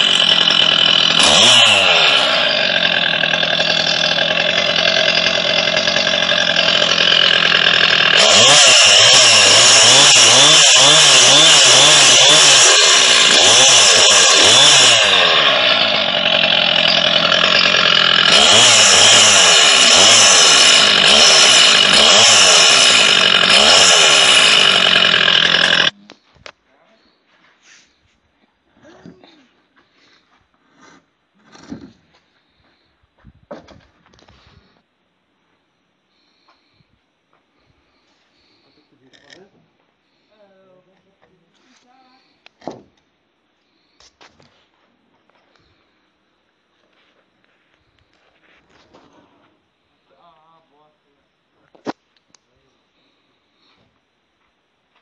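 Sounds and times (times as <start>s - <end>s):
chainsaw cutting wood: 0.0s - 26.0s.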